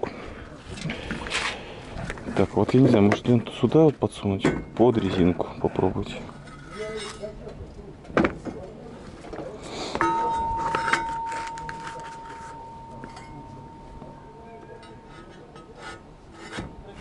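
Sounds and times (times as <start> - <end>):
light metallic clinks: 10.0 - 15.8
struck steel ringing: 10.0 - 17.0.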